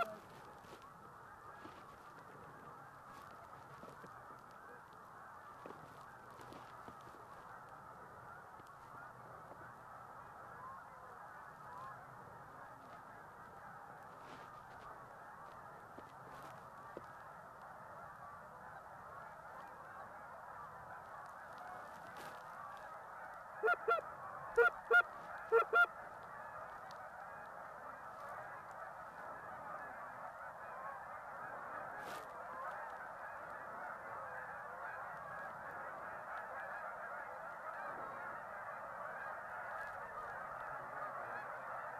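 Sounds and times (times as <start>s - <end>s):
flock of geese honking: 0.0s - 41.9s
loud close goose honks: 0.0s - 41.9s.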